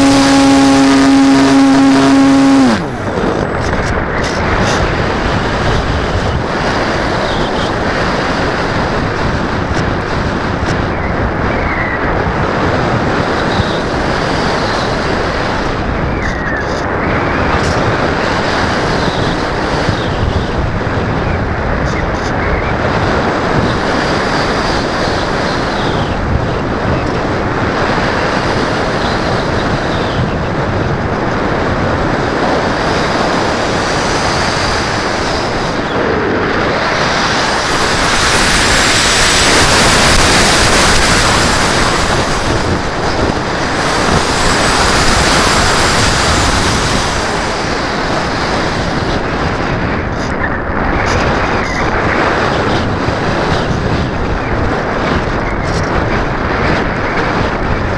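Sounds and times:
faint high whine: 0:00.0 - 0:04.3
airflow rushing over camera: 0:00.0 - 0:11.4, 0:22.9 - 0:50.4.

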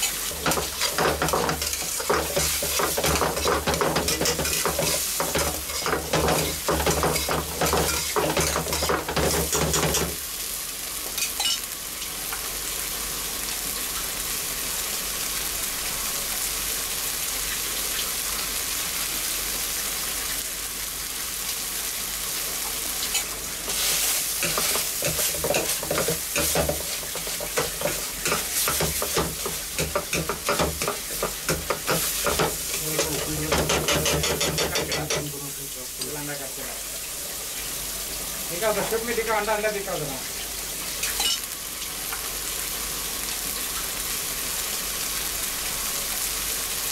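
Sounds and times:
food sizzling in pan: 0:00.0 - 0:46.9
metal spatula scraping pan: 0:00.2 - 0:10.1, 0:23.1 - 0:35.2.

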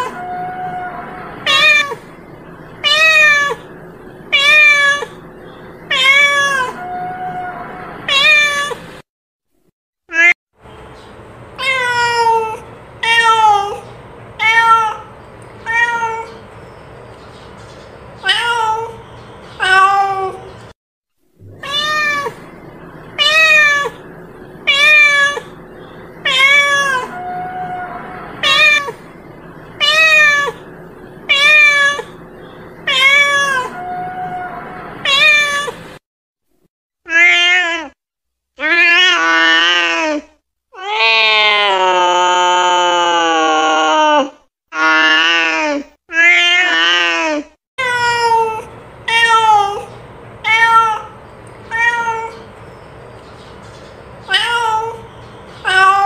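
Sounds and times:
cat meowing: 0:00.0 - 0:02.0, 0:02.8 - 0:03.7, 0:04.3 - 0:05.2, 0:05.9 - 0:08.8, 0:11.6 - 0:16.4, 0:18.2 - 0:19.0, 0:19.6 - 0:20.5, 0:21.4 - 0:22.6, 0:23.2 - 0:25.6, 0:26.2 - 0:29.2, 0:29.8 - 0:32.2, 0:32.8 - 0:35.9, 0:37.1 - 0:38.0, 0:38.6 - 0:52.5, 0:54.3 - 0:56.0.

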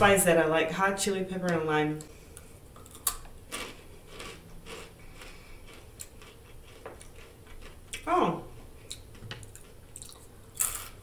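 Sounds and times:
crunching tortilla chip: 0:02.8 - 0:07.8.

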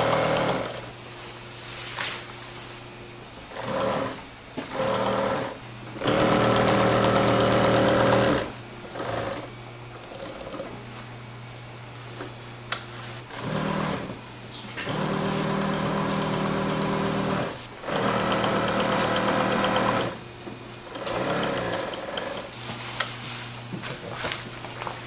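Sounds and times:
sewing machine stitching: 0:00.0 - 0:00.9, 0:03.5 - 0:10.7, 0:13.3 - 0:14.2, 0:14.8 - 0:20.2, 0:20.8 - 0:22.5.

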